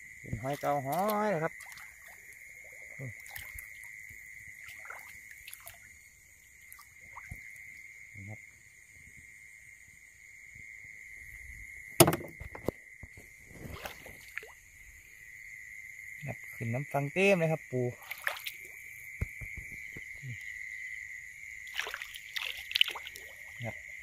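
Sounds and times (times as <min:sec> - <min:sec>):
insects trilling: 0:00.0 - 0:24.0
wading splashes: 0:00.3 - 0:07.8, 0:13.5 - 0:14.6, 0:17.9 - 0:20.1, 0:21.6 - 0:23.6
loud thump: 0:12.0 - 0:12.6.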